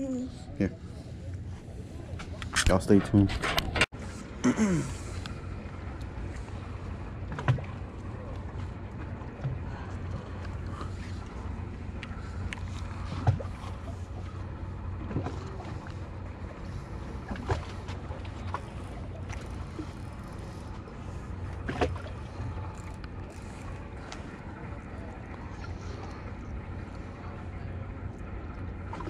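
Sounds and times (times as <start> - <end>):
ferry engines droning: 0.0 - 29.0.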